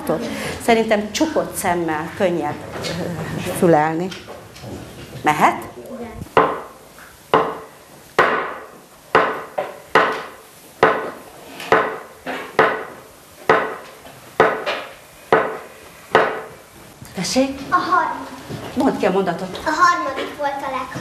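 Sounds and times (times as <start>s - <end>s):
wooden sticks knocking: 6.4s - 16.6s.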